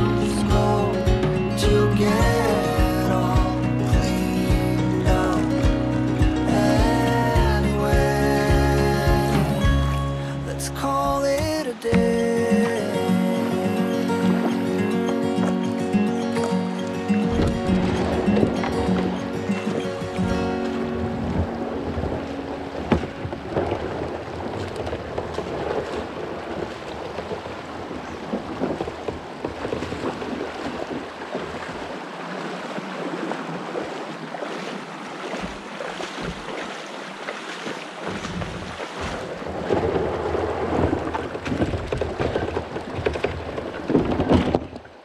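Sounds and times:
water splashing around kayak: 0.0 - 45.0
wind buffeting microphone: 17.0 - 32.0, 38.0 - 45.0.

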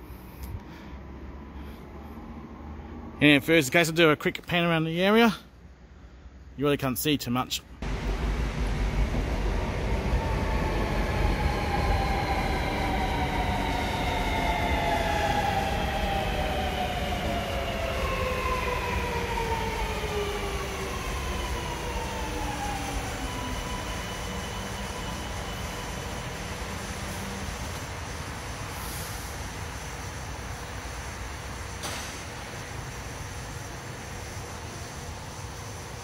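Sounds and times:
train electric whine: 7.8 - 36.0.

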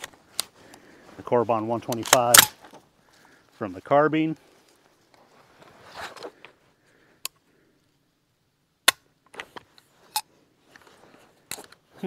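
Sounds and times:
gun bolt metallic clacks: 1.8 - 2.6, 8.9 - 11.8.

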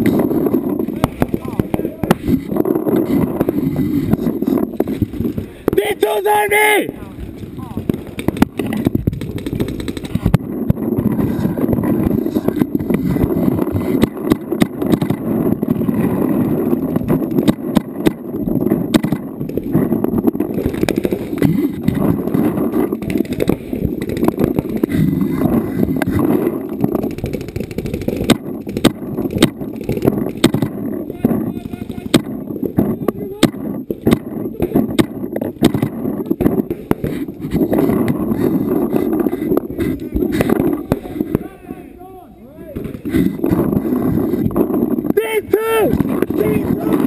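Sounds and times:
paintball markers popping: 7.2 - 41.5.

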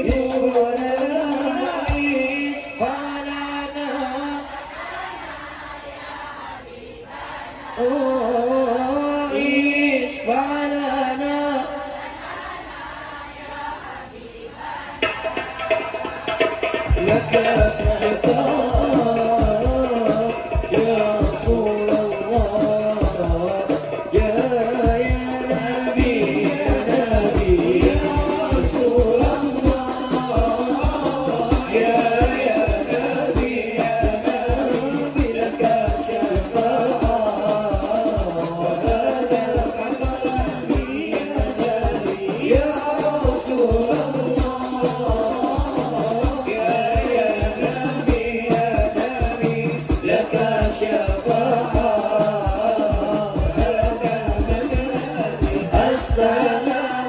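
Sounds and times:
frame drums beating: 0.0 - 2.5, 15.0 - 57.0
men singing: 0.0 - 12.6, 14.6 - 57.0.

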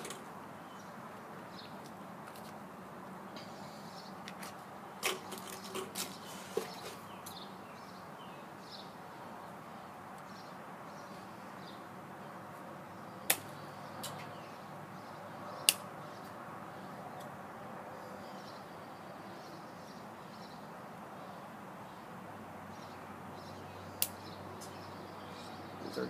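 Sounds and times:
scissors snipping twigs: 13.3 - 14.3.

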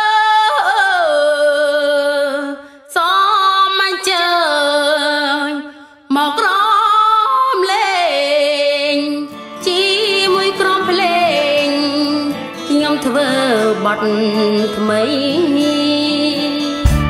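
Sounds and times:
woman singing gliding phrases: 0.0 - 16.9.

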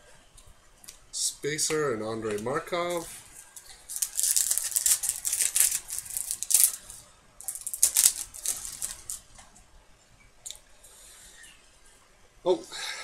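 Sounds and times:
plastic crinkling: 2.3 - 9.3.

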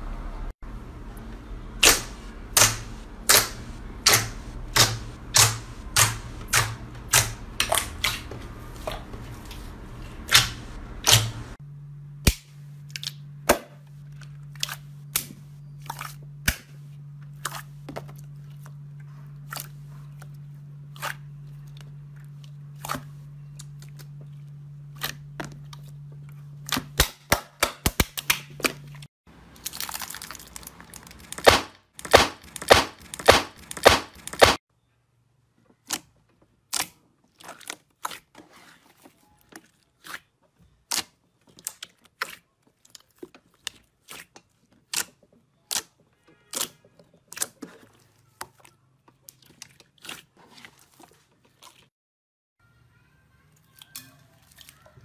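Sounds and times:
steady low hum: 0.0 - 29.5.

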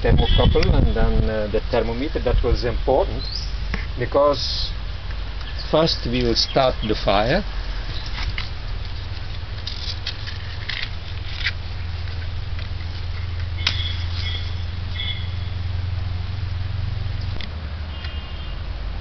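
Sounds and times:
high bird chirps: 3.2 - 3.6, 13.2 - 15.6
kindling clicking and rustling: 7.9 - 14.2.

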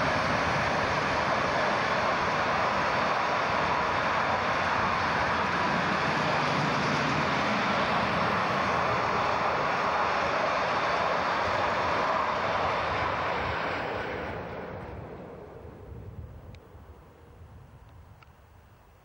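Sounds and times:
diesel locomotive passing: 0.0 - 18.8.

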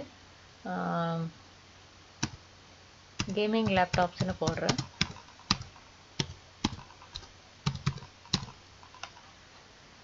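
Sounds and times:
keyboard keystrokes: 3.2 - 9.2.

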